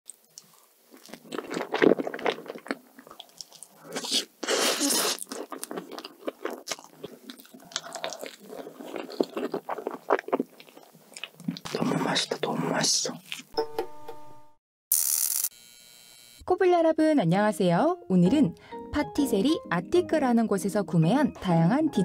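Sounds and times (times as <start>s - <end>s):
wet chewing: 0.1s - 12.2s
crunchy bites: 0.9s - 11.9s.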